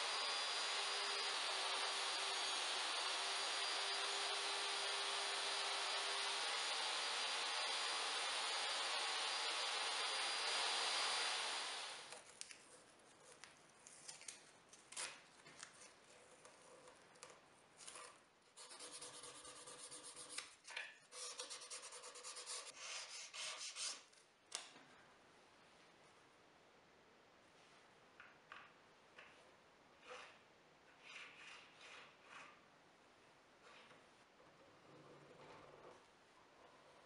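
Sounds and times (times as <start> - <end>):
spatula spreading glue: 30.0 - 32.7.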